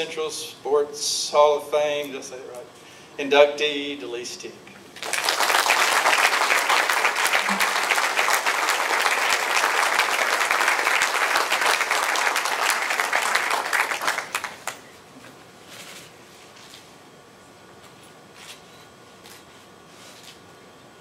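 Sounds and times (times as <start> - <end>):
audience applauding: 5.0 - 14.8.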